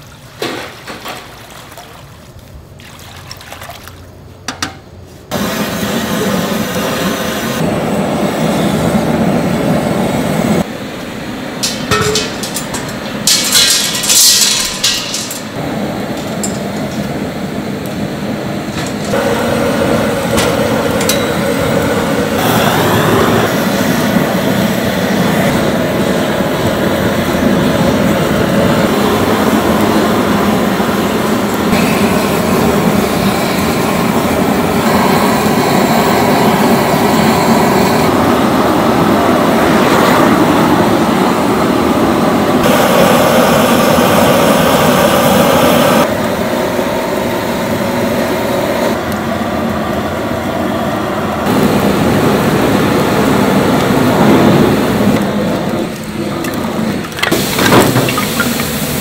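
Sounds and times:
busy restaurant kitchen noise: 10.6s - 38.3s, 51.4s - 59.0s.

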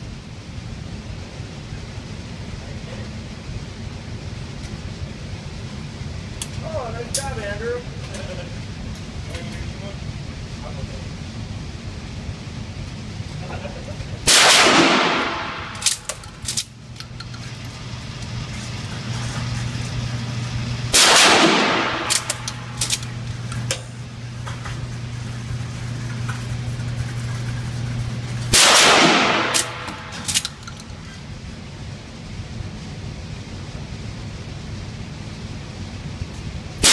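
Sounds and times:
shotgun blasts echoing: 14.3s - 15.8s, 21.0s - 22.4s, 28.5s - 30.2s.

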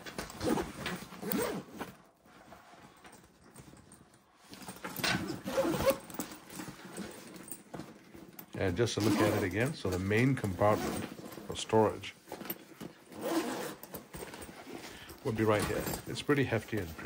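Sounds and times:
zippers opening and closing: 0.2s - 2.1s, 4.7s - 7.6s, 8.8s - 11.7s, 12.6s - 16.2s.

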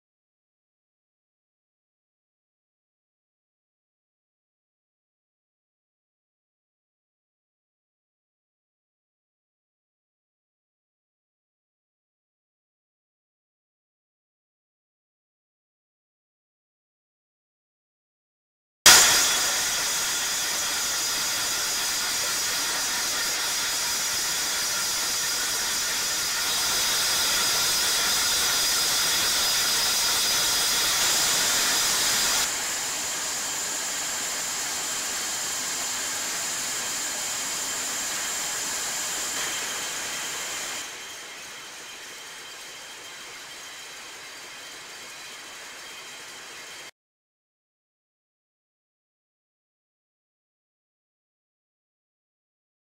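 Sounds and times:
production line machinery hiss: 18.9s - 46.9s
steady high machine tones: 18.9s - 46.9s.

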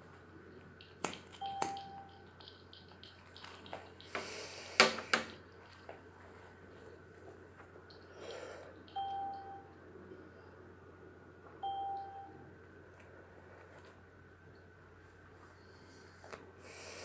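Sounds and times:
electronic beep: 1.4s - 3.1s, 8.9s - 9.7s.

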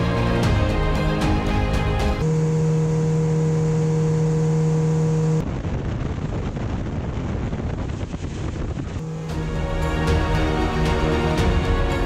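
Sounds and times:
motorboat engine droning: 0.0s - 7.5s, 8.7s - 12.0s
rumbling water: 4.4s - 12.0s
wind noise: 5.4s - 9.4s.

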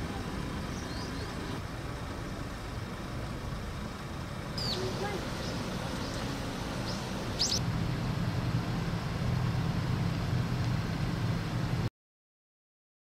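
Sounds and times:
idling vehicle engines hum: 0.0s - 11.9s
bird chirps: 0.6s - 1.5s, 4.6s - 7.6s.

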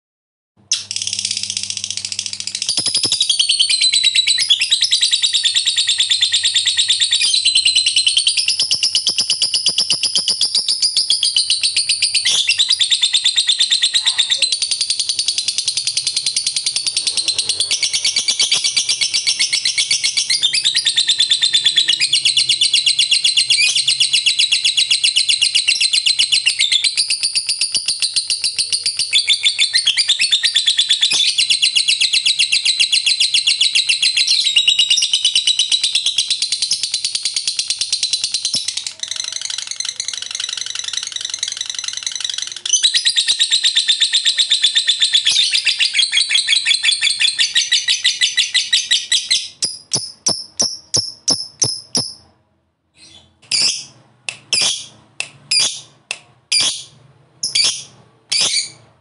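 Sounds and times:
lovebird chattering trill: 0.7s - 52.2s, 53.5s - 58.8s.

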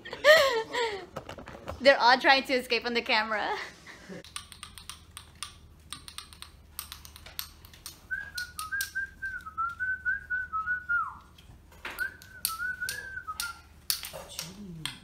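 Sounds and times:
cards and game pieces clicking: 4.3s - 9.0s
person whistling a tune: 8.1s - 11.2s, 12.0s - 13.6s.

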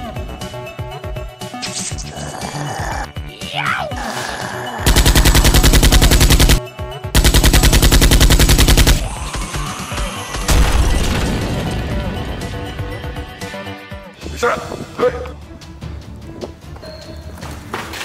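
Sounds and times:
music: 0.0s - 18.0s
machine-gun bursts: 4.9s - 6.6s, 7.2s - 9.1s.

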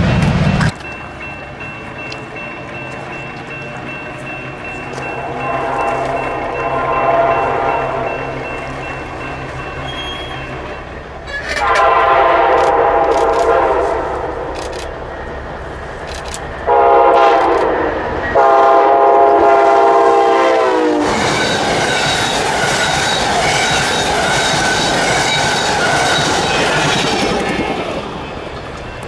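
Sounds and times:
train rolling rumble: 0.0s - 29.0s
locomotive horn blasts: 5.1s - 8.3s, 11.5s - 14.6s, 16.7s - 21.2s
train wheel clatter: 21.0s - 29.0s.

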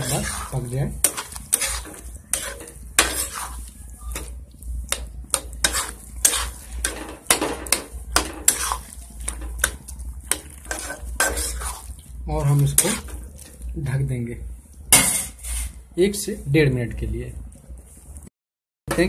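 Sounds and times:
spoon scraping pan: 0.0s - 13.7s, 14.9s - 15.8s.

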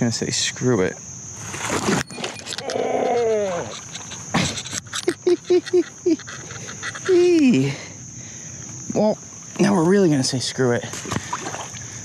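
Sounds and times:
insects chirring: 0.0s - 12.0s
man groaning ohh: 2.6s - 3.7s.

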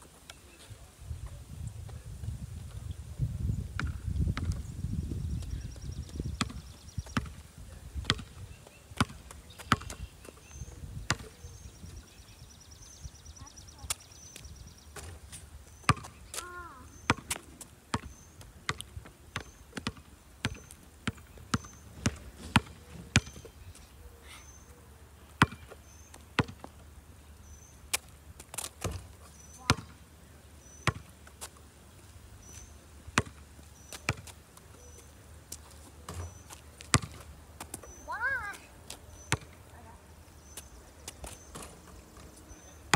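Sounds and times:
basketball bouncing on pavement: 3.8s - 4.6s, 5.4s - 10.4s, 11.0s - 11.4s, 15.8s - 23.5s, 25.4s - 26.8s, 27.9s - 30.0s, 30.7s - 31.5s, 33.1s - 34.9s, 35.6s - 39.8s, 40.4s - 42.9s.

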